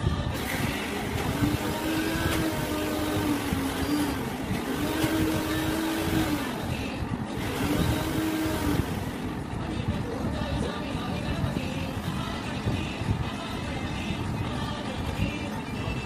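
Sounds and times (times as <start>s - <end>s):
sliding low melody: 0.0s - 10.0s.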